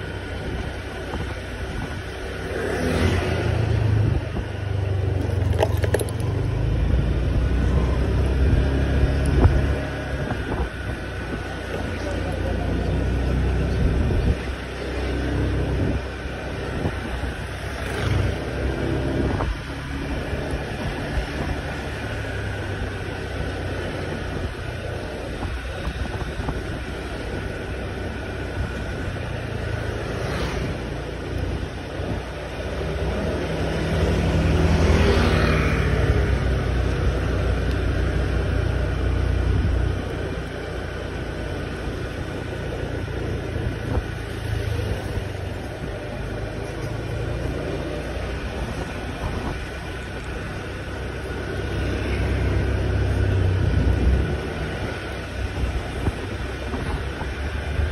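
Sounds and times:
wind noise on microphone: 0.0s - 2.4s, 3.1s - 11.6s, 13.6s - 14.7s, 15.4s - 22.8s, 23.9s - 32.4s, 42.6s - 46.0s, 48.2s - 50.7s, 51.7s - 57.9s.

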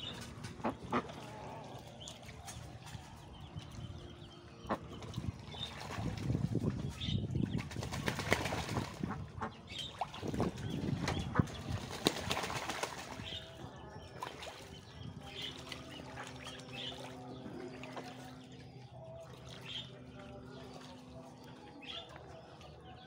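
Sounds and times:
duck splashing and flapping wings: 0.0s - 3.9s, 4.7s - 18.5s.

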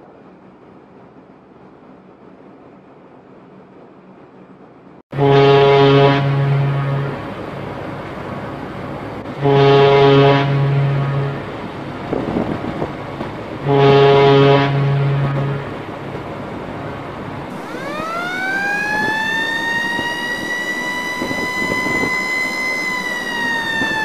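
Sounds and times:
harbour background noise: 0.0s - 24.0s
ship's deep horn: 5.1s - 24.0s
siren-like tone: 5.2s - 7.5s, 9.4s - 11.7s, 17.5s - 24.0s.

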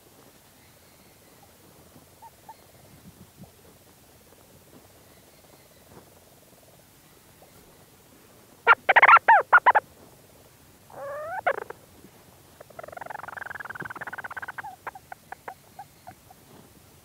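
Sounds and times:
rapid bird trill: 8.7s - 9.8s, 10.9s - 11.8s, 12.6s - 16.3s
seabird calling: 8.7s - 9.8s, 10.9s - 11.7s, 12.6s - 16.3s.

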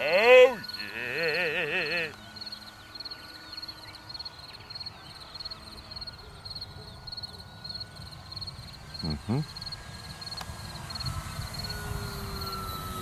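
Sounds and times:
crickets chirping: 0.0s - 13.0s
model plane motor whine: 0.0s - 13.0s.

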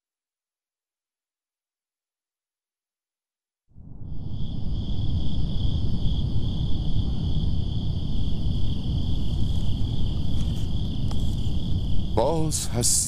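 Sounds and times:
crickets chirring: 3.8s - 13.0s
low steady rumble: 4.1s - 12.7s.

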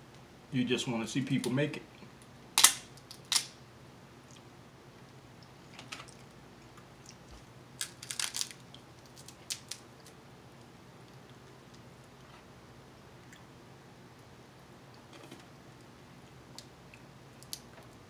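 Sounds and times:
small clicks and crackles: 5.7s - 12.4s, 16.6s - 18.0s
crab shell cracking: 7.8s - 10.2s, 17.4s - 17.7s.

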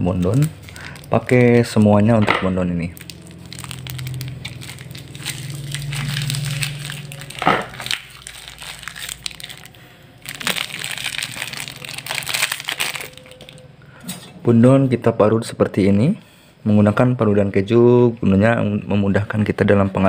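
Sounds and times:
plastic packet crinkling: 0.0s - 13.7s.

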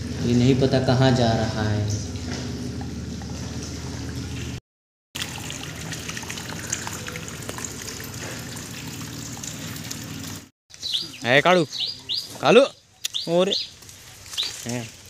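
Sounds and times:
water running from hose: 5.2s - 11.4s, 13.3s - 15.0s.

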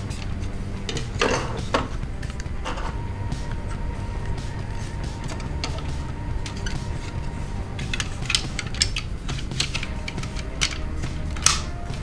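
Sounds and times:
plastic toy parts clicking: 7.8s - 11.7s.

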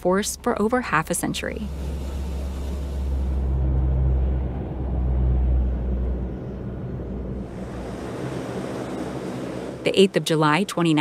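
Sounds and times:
turboprop engines droning: 0.0s - 11.0s
soft rushing noise: 1.6s - 10.0s.

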